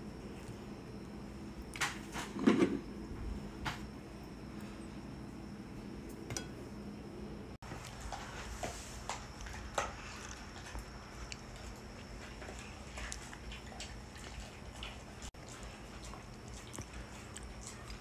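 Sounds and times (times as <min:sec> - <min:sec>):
dishes clinking: 0:06.3 - 0:06.6
dog gnawing bone: 0:09.1 - 0:18.0.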